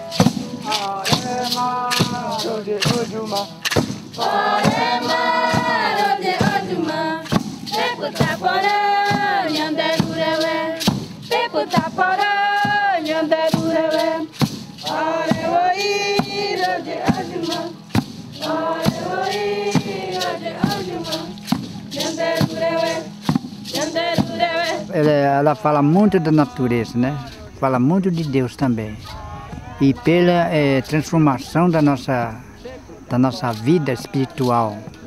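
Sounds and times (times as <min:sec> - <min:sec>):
group singing a chant: 0:00.0 - 0:27.4
percussion beat: 0:00.0 - 0:35.0.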